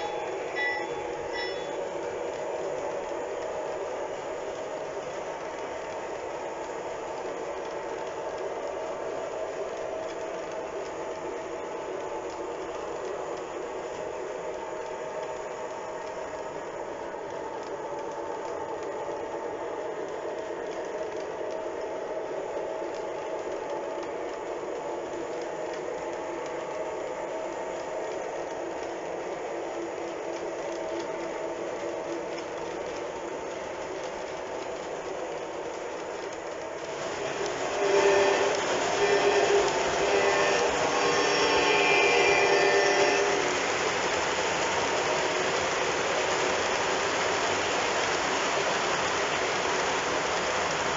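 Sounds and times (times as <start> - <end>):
model train wheels rattling on rail: 22.8 - 50.9.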